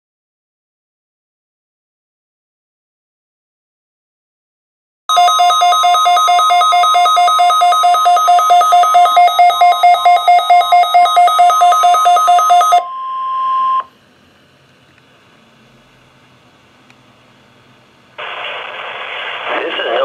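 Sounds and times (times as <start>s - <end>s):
fast two-tone alarm beeping: 5.1s - 13.9s
steady warning tone: 5.1s - 14.0s.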